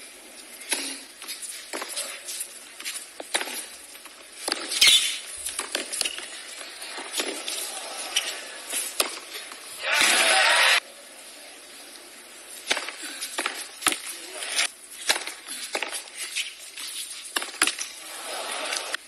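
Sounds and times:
tennis ball bouncing: 4.4s - 7.6s, 8.8s - 9.4s
tennis racket striking ball: 8.9s - 9.3s
crowd applause: 9.8s - 10.8s, 18.0s - 19.0s.

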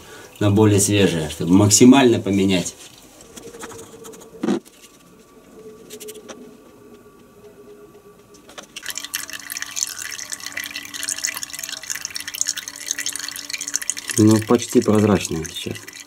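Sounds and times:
engine oil pouring and splashing: 8.7s - 16.0s.

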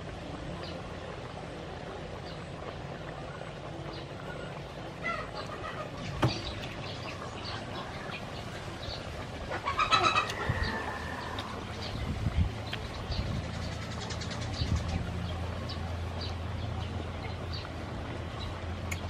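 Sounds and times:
bird calls: 3.3s - 17.7s.

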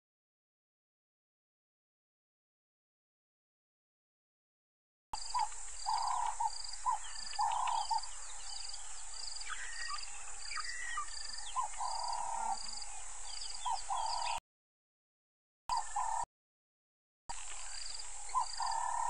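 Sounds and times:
birds chirping and calling: 5.2s - 14.4s, 15.7s - 16.2s, 17.3s - 19.0s
high insect drone: 5.2s - 14.4s, 17.3s - 19.0s
insect pulsing: 17.3s - 19.0s.

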